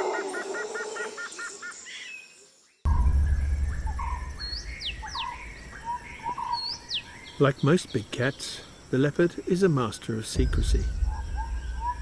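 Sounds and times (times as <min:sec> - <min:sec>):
forest birds chirping: 0:00.0 - 0:12.0
steady low rumble: 0:02.9 - 0:06.3, 0:10.4 - 0:12.0
rapid repeated chirping: 0:10.4 - 0:12.0.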